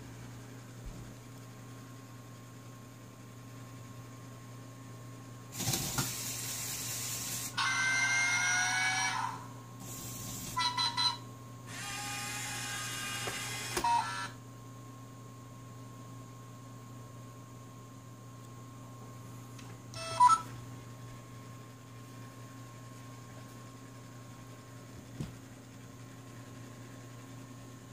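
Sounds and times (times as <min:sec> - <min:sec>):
toy motors whirring through gears: 0:11.7 - 0:14.3.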